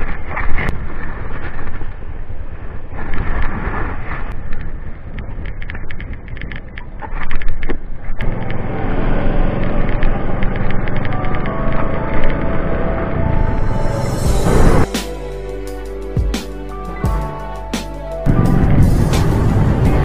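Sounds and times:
wind rushing over microphone: 0:00.0 - 0:14.9
scooter engine: 0:08.2 - 0:13.4
background music: 0:10.8 - 0:20.0.

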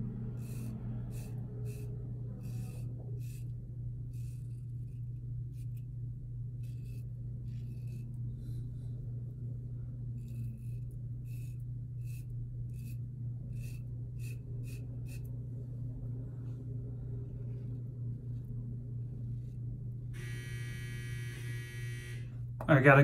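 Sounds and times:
steady low hum: 0:00.0 - 0:23.0
razor scraping stubble: 0:10.2 - 0:15.4.

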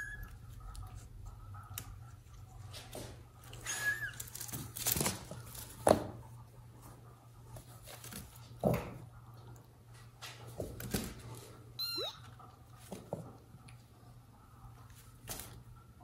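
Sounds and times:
kitten squeak: 0:00.0 - 0:00.3, 0:03.6 - 0:04.2, 0:11.8 - 0:12.3.

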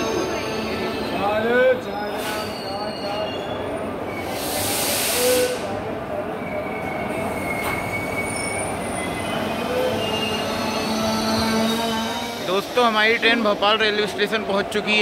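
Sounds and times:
train coaches rolling: 0:00.0 - 0:15.0
wheel and brake squeals: 0:02.1 - 0:04.4, 0:06.4 - 0:12.5
loud hiss: 0:04.2 - 0:05.6.

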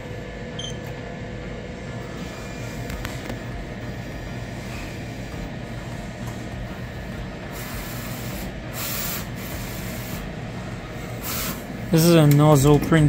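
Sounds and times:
printer machine hum: 0:00.0 - 0:13.0.

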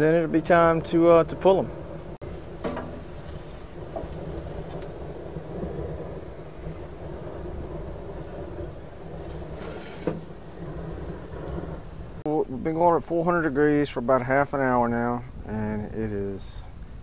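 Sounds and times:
gas burner rushing: 0:00.4 - 0:12.2.

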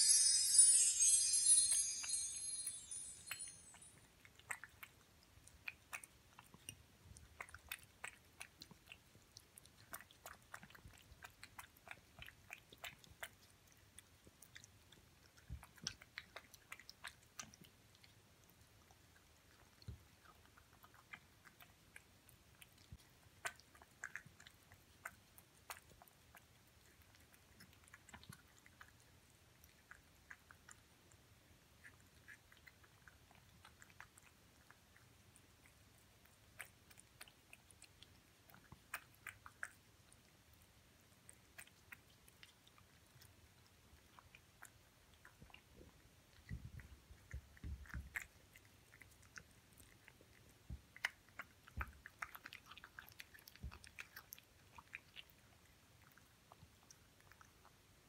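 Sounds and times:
chiming jingle: 0:00.0 - 0:04.0
cat chewing wet food: 0:03.7 - 0:58.0.

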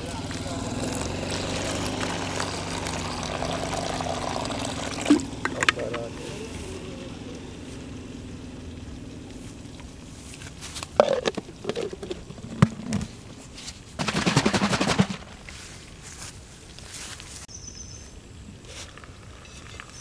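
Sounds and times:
plastic lid creaking rattle: 0:05.0 - 0:06.0, 0:10.8 - 0:13.2
plastic lid clicking: 0:05.1 - 0:05.9.

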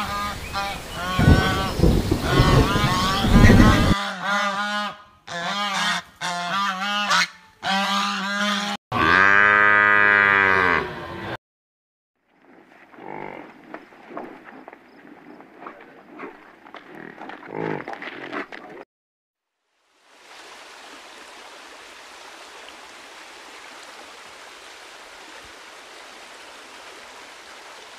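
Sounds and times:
waterfowl honking: 0:00.0 - 0:09.3
cow mooing: 0:08.9 - 0:11.4
water rushing steadily: 0:19.7 - 0:27.9.

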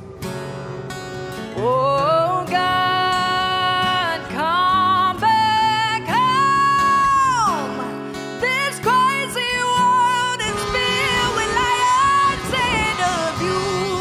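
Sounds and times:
guitar accompaniment: 0:00.0 - 0:14.0
person singing long notes: 0:08.6 - 0:14.0.

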